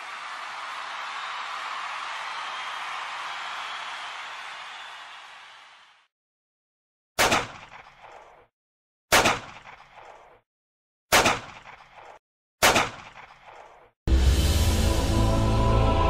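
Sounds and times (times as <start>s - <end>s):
gunshots with echo: 7.2s - 8.4s, 9.1s - 10.3s, 11.1s - 13.8s.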